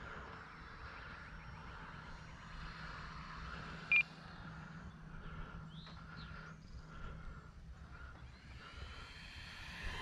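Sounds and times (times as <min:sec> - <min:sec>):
bird chirps: 0:00.0 - 0:06.8
steady low hum: 0:00.0 - 0:10.0.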